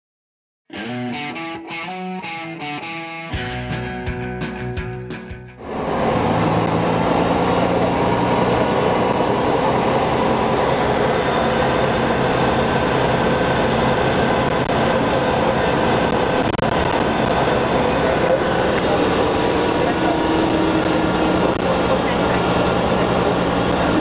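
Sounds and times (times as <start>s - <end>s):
bus engine hum: 5.6s - 24.0s
low drone: 5.6s - 24.0s
road rumble: 5.6s - 24.0s.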